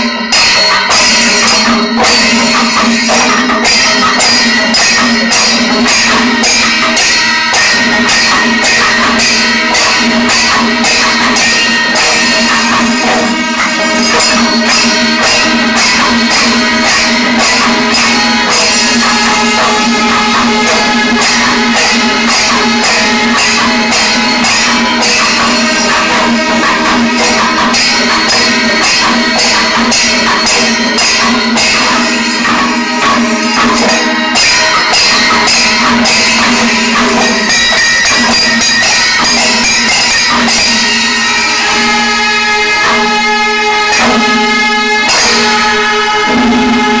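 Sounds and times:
cymbals clashing: 0.0 - 47.0
hand drums beating: 0.0 - 47.0
long held horn tone: 41.2 - 47.0.

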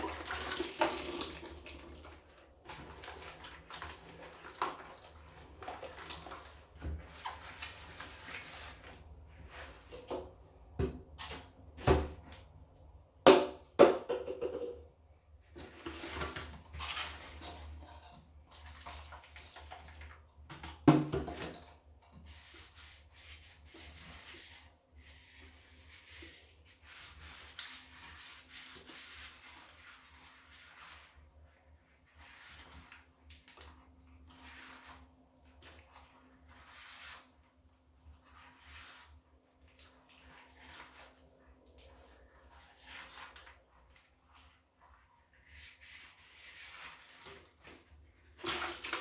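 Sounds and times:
scrubbing and scraping: 1.4 - 12.5, 15.4 - 20.6, 21.3 - 49.0
hollow knocks of plastic cans: 13.3 - 14.8, 20.6 - 21.6.

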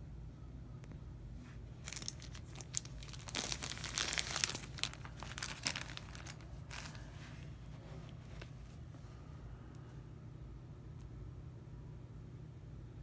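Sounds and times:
plastic shrink wrap crinkling: 1.7 - 8.7.

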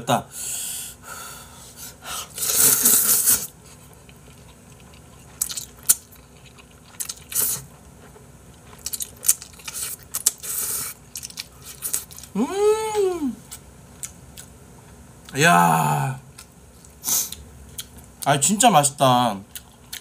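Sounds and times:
person slurping noodles: 2.3 - 3.5
chewing: 2.6 - 12.4, 16.4 - 18.2, 19.5 - 20.0.

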